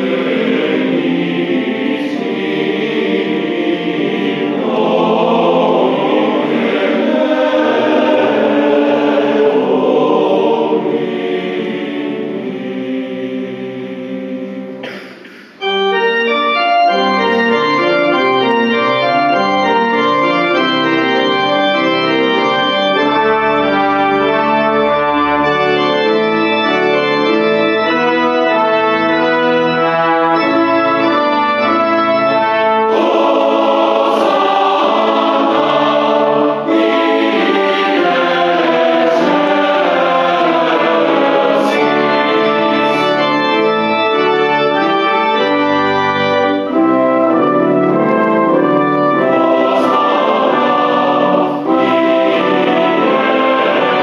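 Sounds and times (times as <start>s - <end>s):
mixed choir singing: 0.0s - 15.0s, 29.8s - 43.9s, 47.9s - 54.0s
pipe organ chords: 0.0s - 54.0s.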